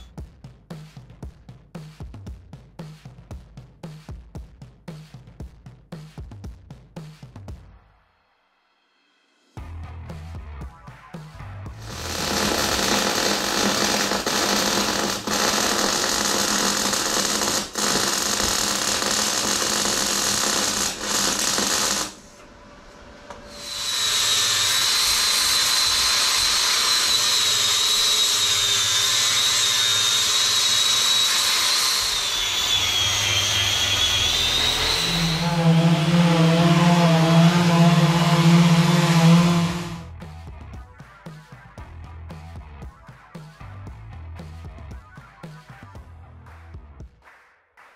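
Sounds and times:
orbital sander humming: 11.8s - 22.2s, 32.4s - 40.1s
angle grinder grinding steel: 11.8s - 22.4s, 23.3s - 40.1s.

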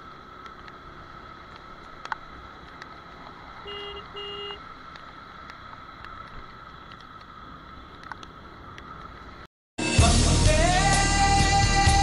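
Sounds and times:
faint ticks: 1.5s - 3.4s
short horn beeps: 3.7s - 4.6s.

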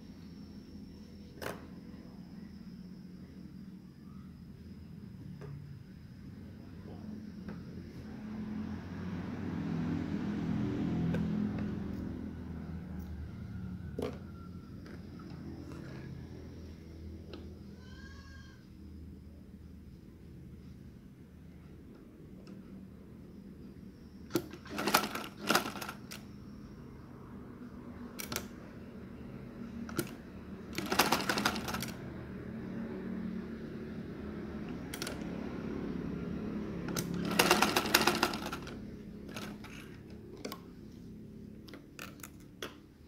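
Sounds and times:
sewing machine stitching: 24.4s - 26.2s, 29.9s - 32.0s, 36.9s - 40.0s.

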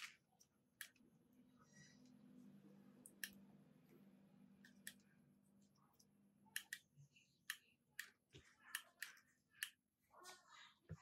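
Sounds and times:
clicks of wire leads and terminals: 6.0s - 9.9s.

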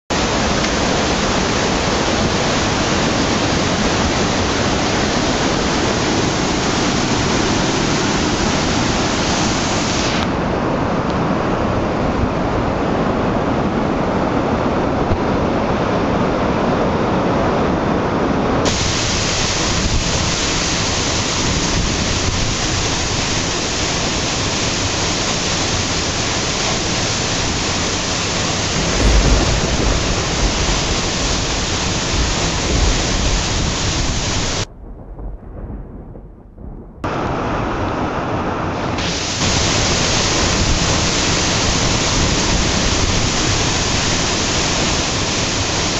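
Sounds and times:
waterfall rushing: 0.1s - 14.7s, 18.6s - 34.7s, 37.1s - 45.9s
low thump: 28.9s - 30.7s, 34.7s - 37.1s.

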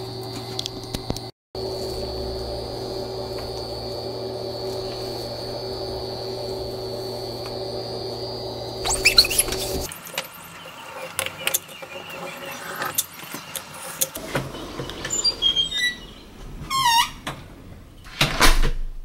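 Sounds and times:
steady hum: 0.0s - 9.9s.

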